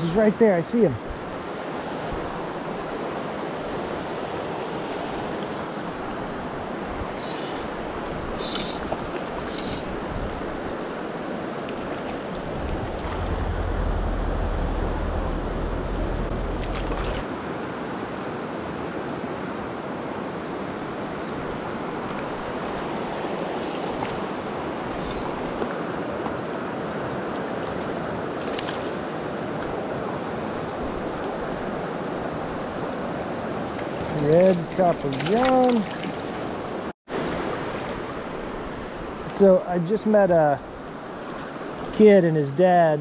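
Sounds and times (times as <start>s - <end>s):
low rumble on microphone: 12.4s - 17.2s.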